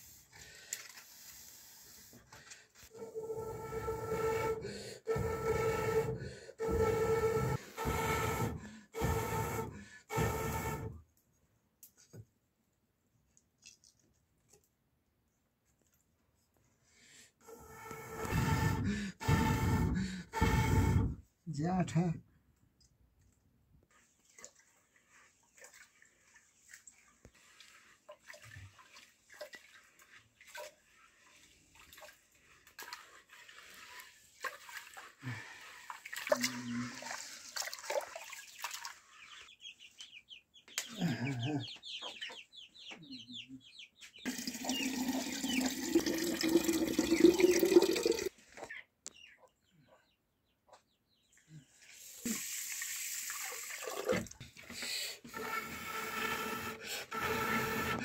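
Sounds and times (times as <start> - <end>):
water pouring into a vessel: 44.3 - 48.3, 52.3 - 54.4.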